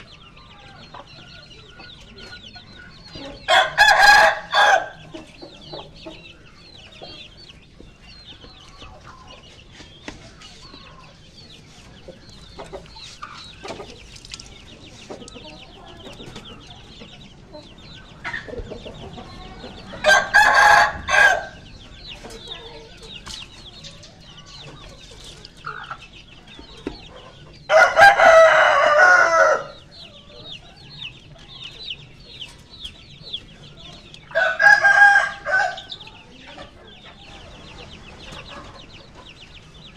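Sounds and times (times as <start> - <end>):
rooster crowing: 3.5 - 5.0, 19.9 - 21.6, 27.7 - 29.8, 34.3 - 36.0.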